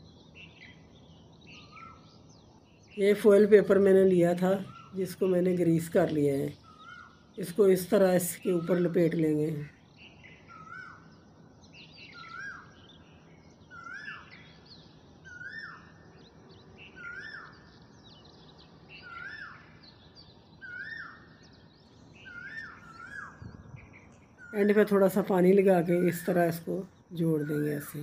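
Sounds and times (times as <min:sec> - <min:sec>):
faint steady hum: 0:00.0 - 0:28.0
bird calling: 0:03.0 - 0:09.7, 0:10.4 - 0:11.1, 0:12.1 - 0:12.8, 0:17.0 - 0:17.7, 0:20.6 - 0:28.0.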